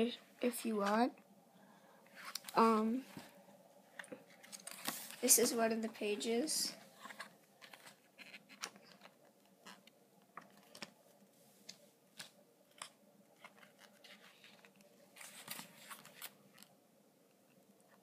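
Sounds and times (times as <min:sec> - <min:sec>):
page turning rustle: 0:04.0 - 0:05.6, 0:07.0 - 0:11.0, 0:11.6 - 0:16.7.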